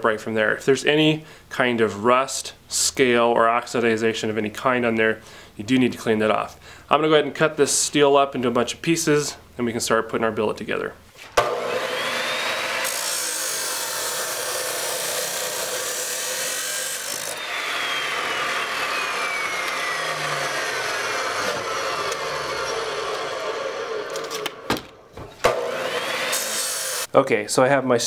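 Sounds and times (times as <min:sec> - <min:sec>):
chop saw grinding steel: 0:11.4 - 0:24.6, 0:25.4 - 0:27.1
saw motor whine: 0:11.4 - 0:24.6, 0:25.5 - 0:27.1.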